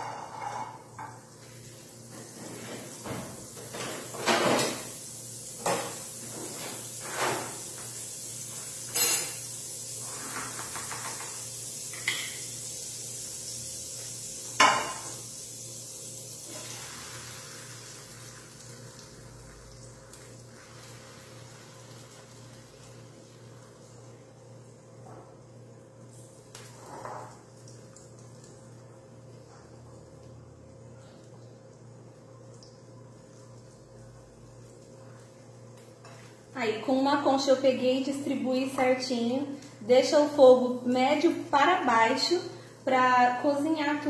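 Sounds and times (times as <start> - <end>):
butter sizzling in a frying pan: 0.3 - 25.0, 25.8 - 28.9.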